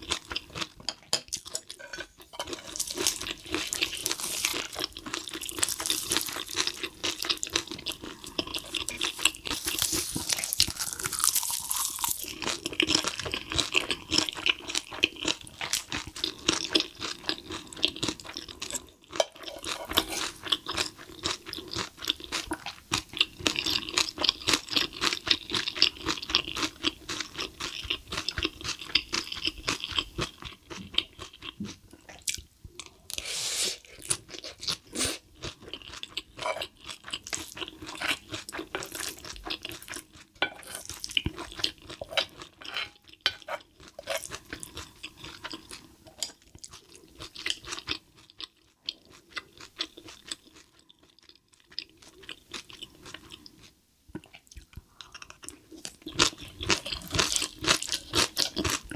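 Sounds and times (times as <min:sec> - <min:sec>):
wet chewing and crunching: 0:00.0 - 0:33.0, 0:34.0 - 0:58.9
spoon scraping pan: 0:00.8 - 0:04.6, 0:19.2 - 0:20.4, 0:36.4 - 0:36.7, 0:40.4 - 0:41.0, 0:42.1 - 0:44.4.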